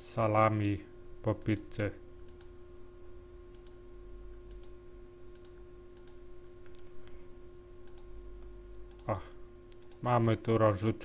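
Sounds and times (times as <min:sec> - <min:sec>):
steady electrical hum: 0:00.0 - 0:11.0
computer mouse clicks: 0:01.4 - 0:02.5, 0:03.5 - 0:03.8, 0:04.4 - 0:07.0, 0:07.8 - 0:08.1, 0:08.7 - 0:10.1.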